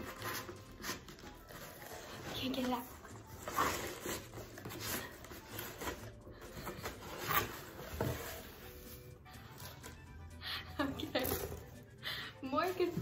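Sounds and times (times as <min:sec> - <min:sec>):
cardboard box scraping: 0:00.0 - 0:09.0.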